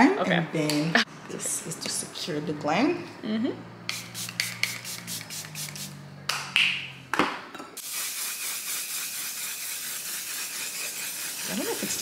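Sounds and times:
spray puffs: 0:03.9 - 0:06.0, 0:07.8 - 0:12.0
spraying hiss: 0:03.9 - 0:06.0, 0:07.8 - 0:12.0.

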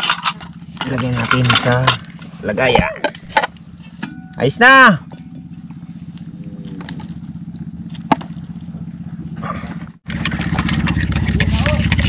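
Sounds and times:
small engine droning: 0:00.0 - 0:12.0.

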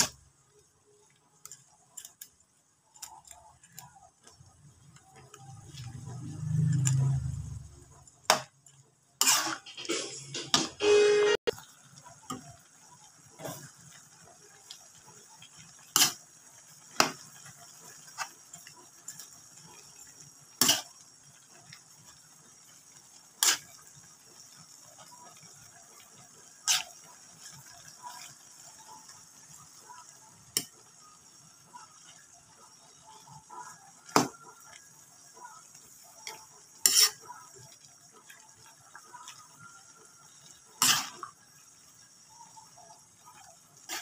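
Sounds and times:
metal spatula scraping a wok: 0:09.2 - 0:11.4, 0:15.8 - 0:17.3, 0:20.5 - 0:21.0, 0:23.3 - 0:24.0, 0:25.3 - 0:28.7, 0:36.2 - 0:38.2, 0:40.6 - 0:41.6, 0:43.2 - 0:44.0.

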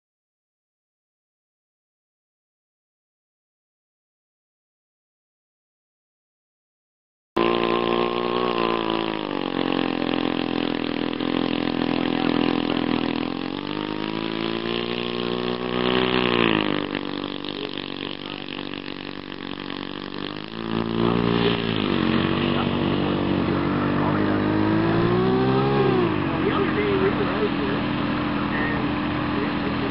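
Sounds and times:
model plane engine running: 0:07.4 - 0:29.9.

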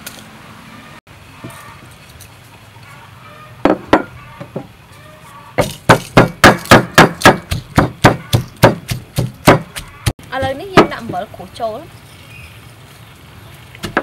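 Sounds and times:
pestle pounding in wooden mortar: 0:05.6 - 0:11.3.

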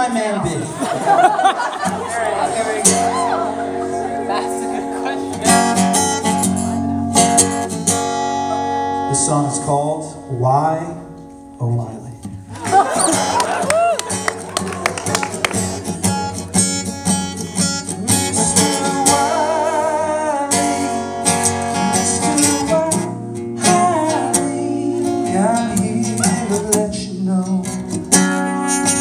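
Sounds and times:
acoustic guitar strumming: 0:00.8 - 0:29.0
person singing: 0:17.9 - 0:21.2, 0:22.0 - 0:29.0.

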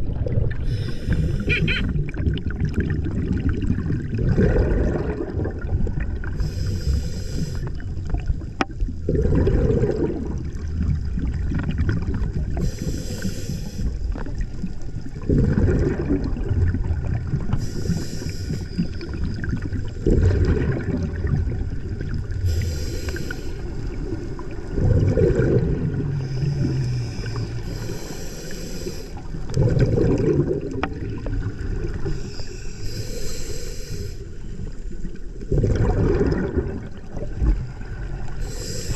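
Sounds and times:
bubbling exhale underwater: 0:00.0 - 0:33.2, 0:35.0 - 0:38.9
regulator inhale hiss: 0:00.6 - 0:01.7, 0:06.4 - 0:07.8, 0:12.6 - 0:14.2, 0:17.5 - 0:19.2, 0:22.4 - 0:23.9, 0:26.2 - 0:29.4, 0:32.0 - 0:35.1, 0:38.4 - 0:38.9.

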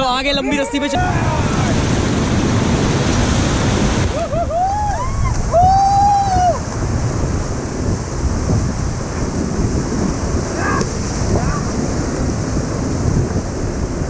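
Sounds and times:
river rapids rushing: 0:00.0 - 0:14.0
wind buffeting microphone: 0:00.0 - 0:14.0
person shouting: 0:00.4 - 0:01.7, 0:10.5 - 0:11.6
person whooping: 0:04.1 - 0:06.7.

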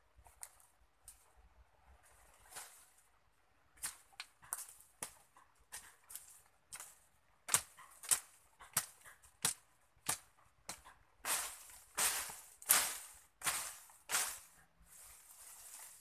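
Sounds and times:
machete hacking undergrowth: 0:03.8 - 0:14.6
machete swishing strokes: 0:11.3 - 0:14.5.

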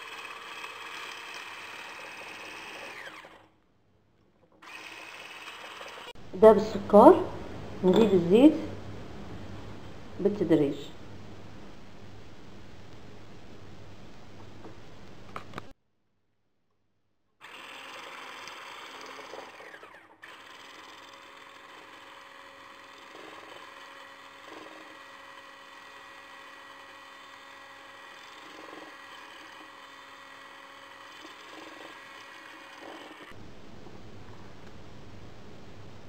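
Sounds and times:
electric mixer whisking: 0:00.0 - 0:03.6, 0:04.6 - 0:06.2, 0:17.4 - 0:33.4.

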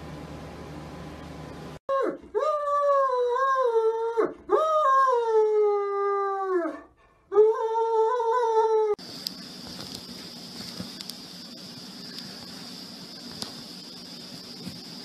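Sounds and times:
dog howling and whining: 0:01.9 - 0:09.0.

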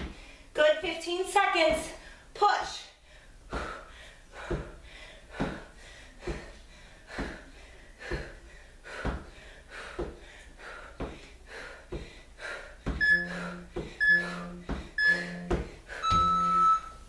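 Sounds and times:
timer countdown beeps: 0:13.0 - 0:17.0.

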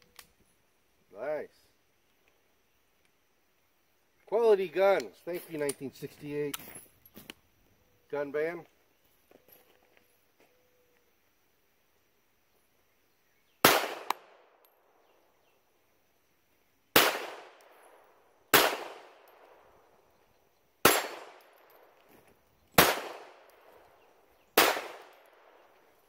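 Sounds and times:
pistol shots with echo: 0:13.6 - 0:14.6, 0:16.9 - 0:19.8, 0:20.8 - 0:22.0, 0:22.8 - 0:23.8, 0:24.6 - 0:25.7.

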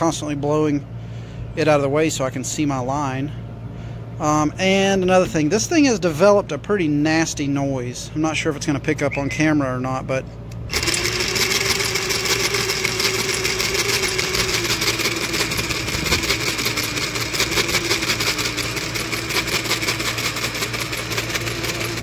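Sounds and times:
jigsaw running with rattle: 0:10.7 - 0:22.0.

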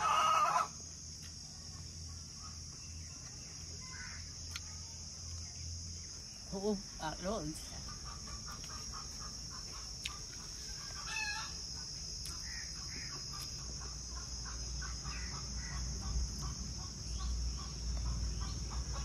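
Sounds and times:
chickens clucking: 0:07.8 - 0:19.0.

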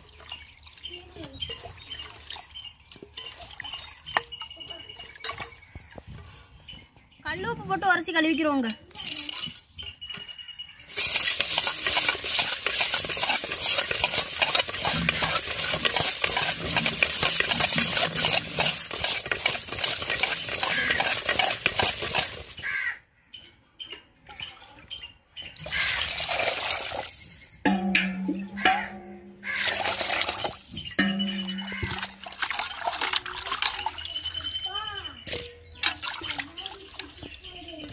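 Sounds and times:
fish washed in water: 0:00.0 - 0:05.7, 0:10.9 - 0:22.9, 0:25.5 - 0:27.5, 0:28.6 - 0:37.9
salt scraping fish in metal pot: 0:10.9 - 0:22.7, 0:25.7 - 0:27.1, 0:27.7 - 0:34.4.

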